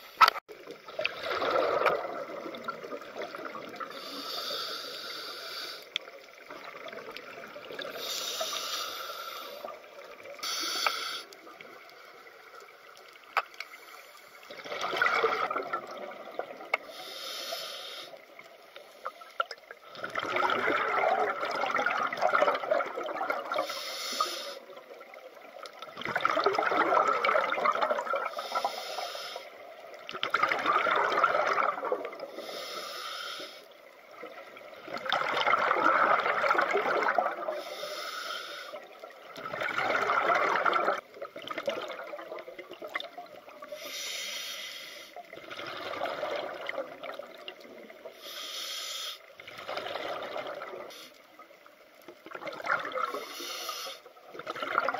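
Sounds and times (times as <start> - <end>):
exhaled bubbles rushing: 0.8 - 4.0, 14.4 - 16.7, 19.8 - 23.6, 24.8 - 28.3, 29.8 - 32.3, 34.1 - 37.6, 38.9 - 43.6, 45.3 - 48.1, 49.4 - 50.9, 52.2 - 53.3, 54.2 - 54.9
regulator inhale hiss: 3.9 - 6.0, 7.9 - 9.8, 10.4 - 11.5, 13.6 - 14.5, 16.8 - 19.4, 23.5 - 24.8, 28.3 - 29.6, 32.3 - 33.9, 37.5 - 38.9, 43.6 - 45.3, 48.1 - 49.4, 50.9 - 51.4, 53.1 - 54.1.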